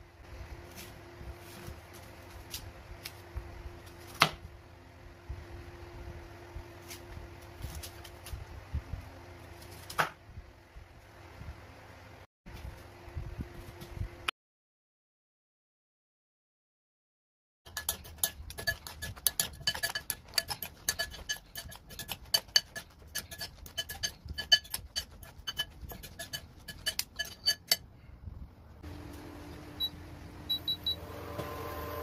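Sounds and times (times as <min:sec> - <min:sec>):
induction hob hum: 0:00.0 - 0:09.6, 0:17.7 - 0:32.0
utensil clinking against bowl: 0:17.7 - 0:27.8.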